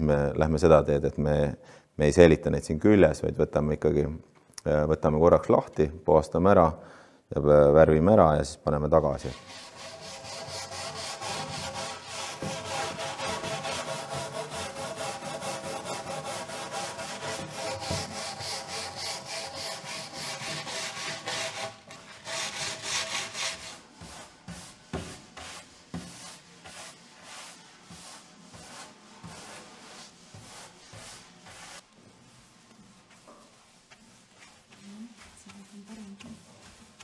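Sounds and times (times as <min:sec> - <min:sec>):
wire brush scrubbing wood: 0:09.2 - 0:37.0.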